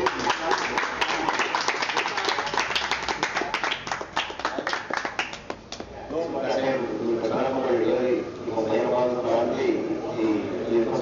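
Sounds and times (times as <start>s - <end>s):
group clapping in applause: 0.0s - 5.9s.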